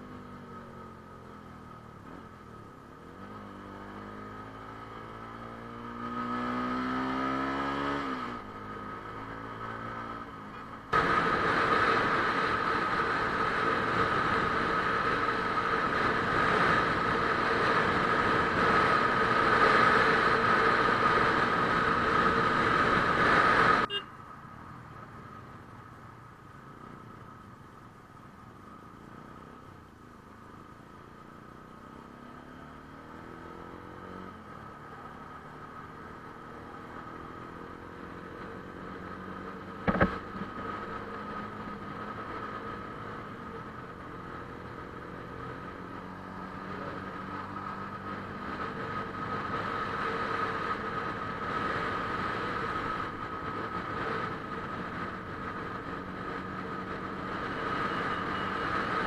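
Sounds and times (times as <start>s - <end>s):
motorcycle engine accelerating: 0.0s - 24.0s, 30.4s - 59.0s
road and wind noise: 0.0s - 59.0s
sharp knock: 39.8s - 40.2s.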